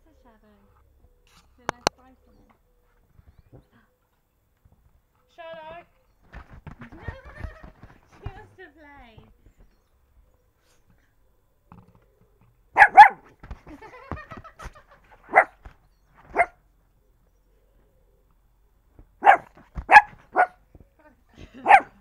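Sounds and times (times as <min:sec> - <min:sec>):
small dog barking: 0:12.8 - 0:13.4, 0:15.2 - 0:15.6, 0:16.3 - 0:16.6, 0:19.2 - 0:20.6, 0:21.6 - 0:22.0.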